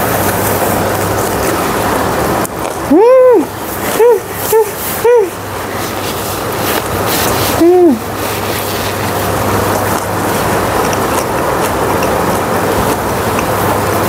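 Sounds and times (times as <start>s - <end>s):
person humming: 2.9s - 5.4s, 7.5s - 8.1s.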